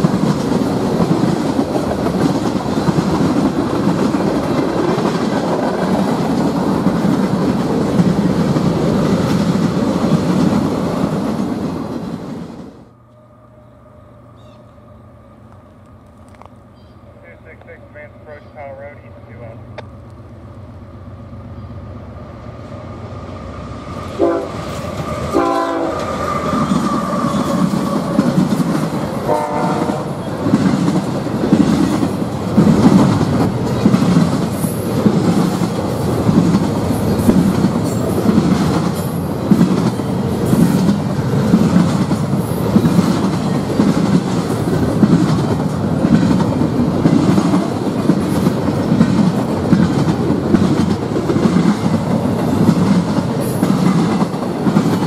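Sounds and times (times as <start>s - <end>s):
train wheels clacking on rails: 0.0s - 12.4s, 24.0s - 55.0s
diesel locomotive rumble: 0.0s - 55.0s
train horn: 24.2s - 28.0s, 29.2s - 30.4s.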